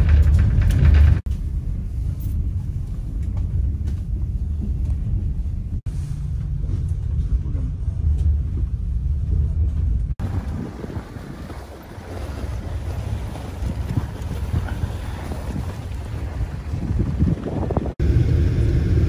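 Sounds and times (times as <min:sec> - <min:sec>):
train rumble inside carriage: 0:00.0 - 0:10.8.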